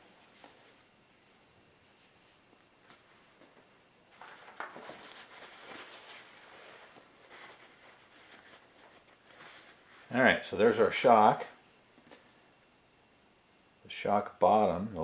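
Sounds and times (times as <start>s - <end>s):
paper towel rustling: 4.1s - 10.6s.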